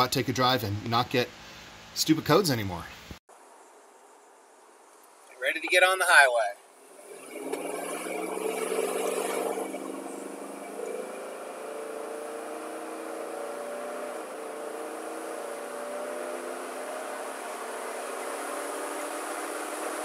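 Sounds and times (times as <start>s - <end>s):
engine revving at full throttle: 6.9s - 20.0s.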